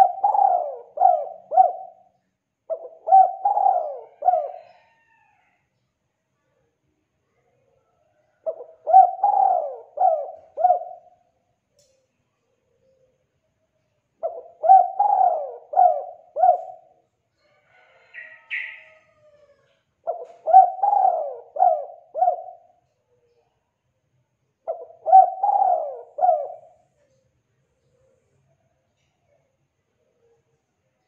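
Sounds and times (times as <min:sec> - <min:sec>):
dove cooing: 0:00.0 - 0:05.2, 0:08.3 - 0:11.2, 0:14.2 - 0:17.0, 0:17.8 - 0:22.8, 0:24.6 - 0:27.1.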